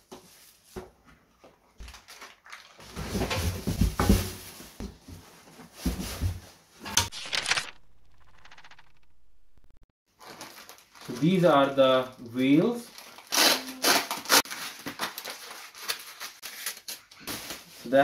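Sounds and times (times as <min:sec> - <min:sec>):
plastic wrapping rustling: 0:01.8 - 0:04.8, 0:10.1 - 0:11.6, 0:12.6 - 0:18.0.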